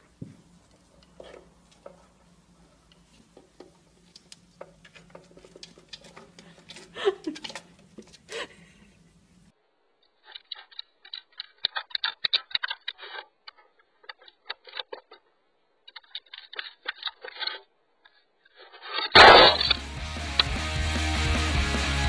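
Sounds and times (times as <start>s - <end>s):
rapid light clicks and scratches: 2.8s - 8.4s, 10.0s - 20.5s.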